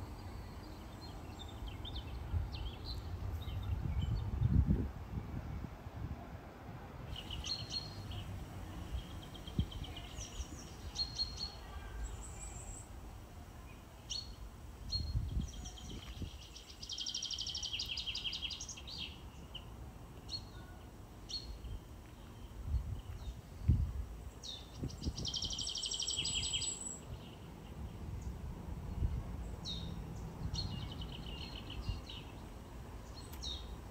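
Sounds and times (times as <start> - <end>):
songbirds chirping and singing: 7.1 - 33.9.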